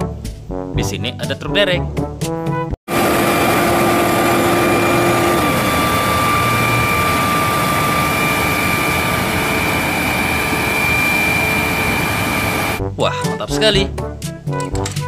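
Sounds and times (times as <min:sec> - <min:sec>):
high whine: 0:02.9 - 0:12.8
low hum: 0:02.9 - 0:12.8
truck engine running: 0:02.9 - 0:12.8.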